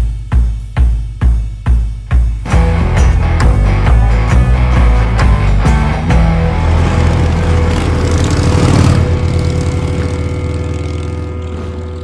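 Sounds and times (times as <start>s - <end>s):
motorcycle engine pulling away: 5.0s - 12.0s.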